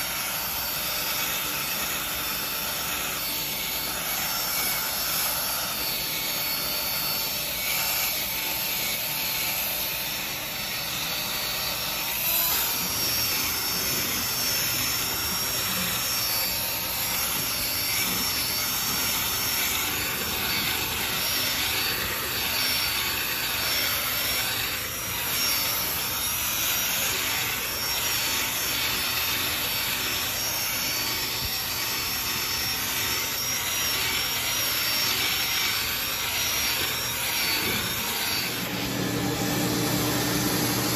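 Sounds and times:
drill motor running: 0.0s - 40.9s.

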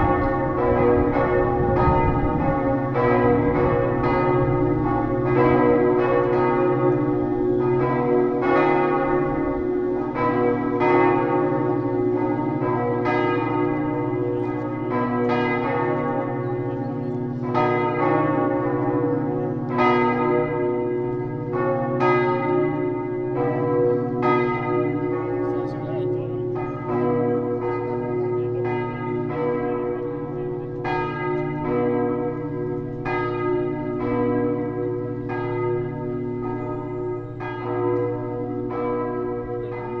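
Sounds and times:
church bells pealing: 0.0s - 40.0s.

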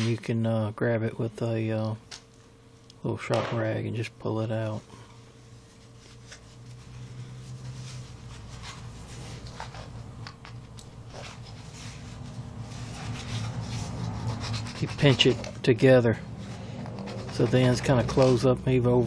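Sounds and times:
steady low hum: 0.0s - 19.0s
rag rubbing metal piston: 12.9s - 15.6s.

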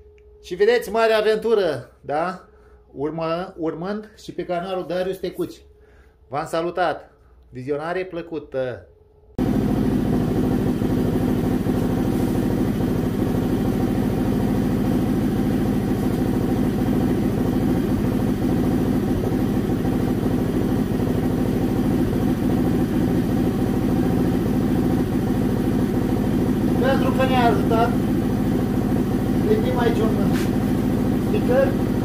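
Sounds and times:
atv engine running: 9.4s - 32.0s.

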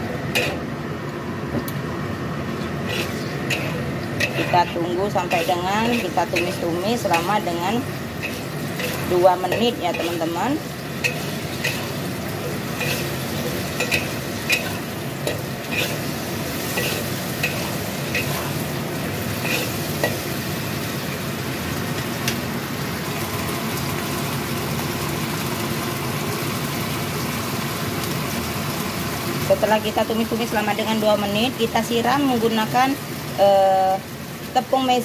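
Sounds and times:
food sizzling in a wok: 0.0s - 0.9s, 1.8s - 35.0s
metal spatula scraping wok: 2.7s - 18.7s, 19.4s - 20.3s.

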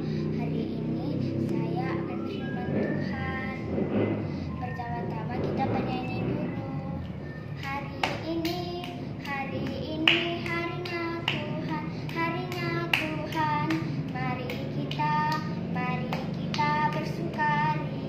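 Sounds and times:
girl singing: 0.0s - 18.0s
hand claps: 7.6s - 15.5s, 16.1s - 17.2s.

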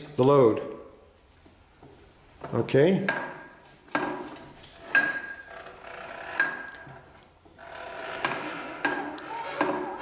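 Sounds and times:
wooden rubbing: 3.9s - 10.0s.

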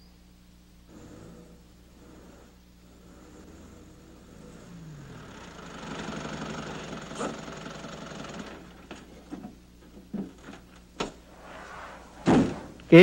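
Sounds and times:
van engine running: 0.9s - 9.6s.

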